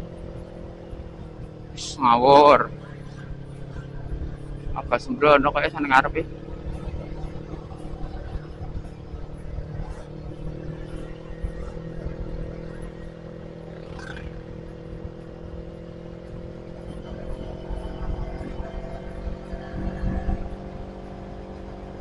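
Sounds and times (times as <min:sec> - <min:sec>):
motorcycle engine cruising: 0:00.0 - 0:22.0
wind rumble on microphone: 0:06.0 - 0:22.0.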